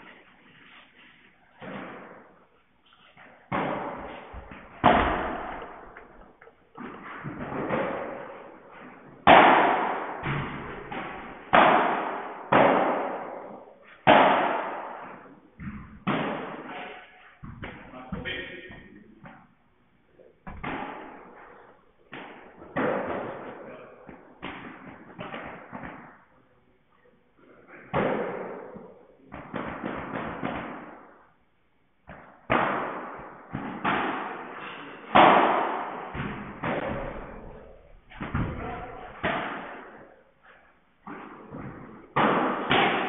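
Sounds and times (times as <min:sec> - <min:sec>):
padel ball hits echoing: 0:03.2 - 0:19.5, 0:20.4 - 0:21.4, 0:32.0 - 0:40.1, 0:41.0 - 0:43.0.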